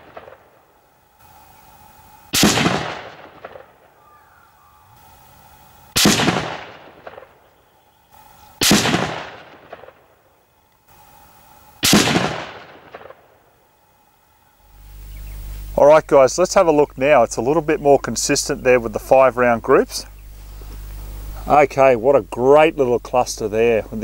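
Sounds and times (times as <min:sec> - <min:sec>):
rifle shots with echo: 0:00.0 - 0:00.6, 0:02.3 - 0:03.9, 0:06.0 - 0:07.4, 0:08.6 - 0:10.2, 0:11.8 - 0:13.4.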